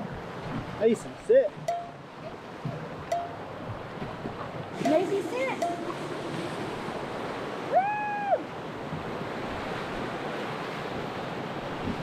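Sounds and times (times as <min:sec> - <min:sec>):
whitewater rapids rushing: 0:04.6 - 0:08.6.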